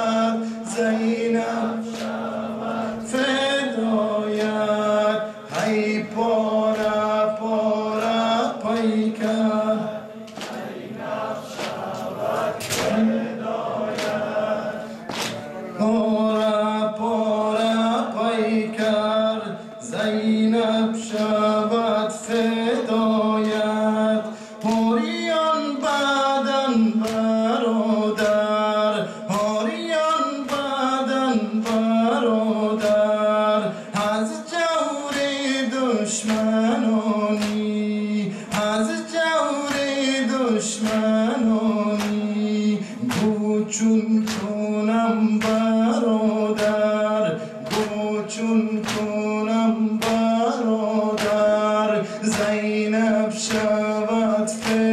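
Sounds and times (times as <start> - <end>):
man singing a lament: 0.0 - 54.9
chest beating slaps: 15.0 - 15.4.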